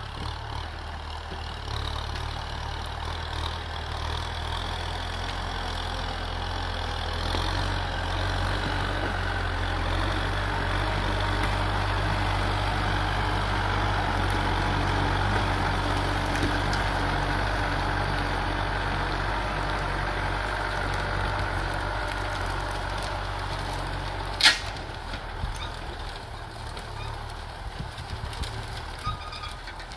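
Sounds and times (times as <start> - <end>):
tractor diesel engine running: 0.0 - 29.9.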